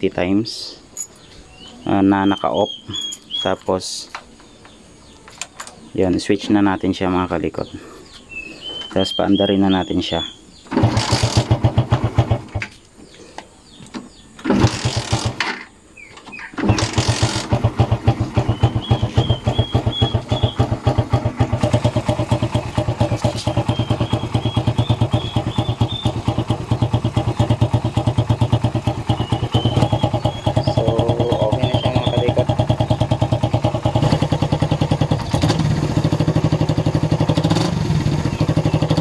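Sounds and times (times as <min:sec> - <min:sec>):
motorcycle engine starting and running: 0:08.8 - 0:13.1, 0:13.7 - 0:39.0.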